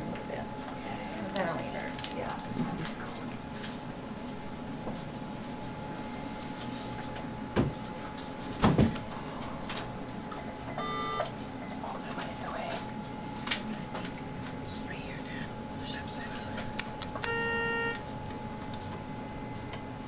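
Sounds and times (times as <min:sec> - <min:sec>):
low room murmur: 0:00.0 - 0:17.1
electrical hum: 0:00.0 - 0:20.0
short electronic beep: 0:10.8 - 0:11.3, 0:17.3 - 0:18.0.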